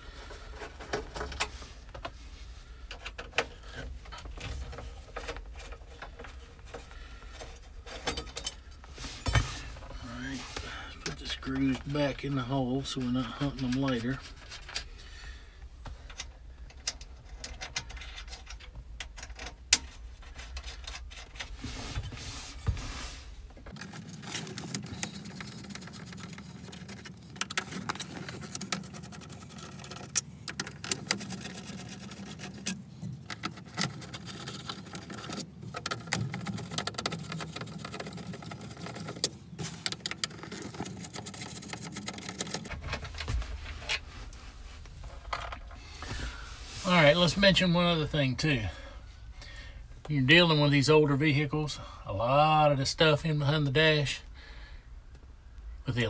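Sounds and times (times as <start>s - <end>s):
small clicks and rattles of handwork: 23.6s - 46.1s.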